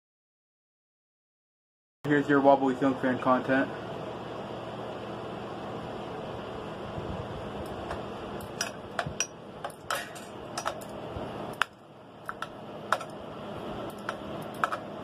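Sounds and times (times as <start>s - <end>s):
ceiling fan whooshing: 2.1s - 15.0s
fan housing clinking and rattling: 7.6s - 13.2s, 13.9s - 14.9s.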